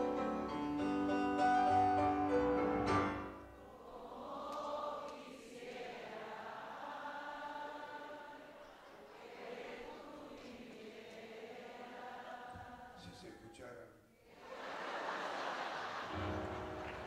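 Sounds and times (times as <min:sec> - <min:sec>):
grand piano melody: 0:00.0 - 0:03.7, 0:16.1 - 0:17.0
crowd singing together: 0:03.1 - 0:13.2, 0:14.3 - 0:17.0.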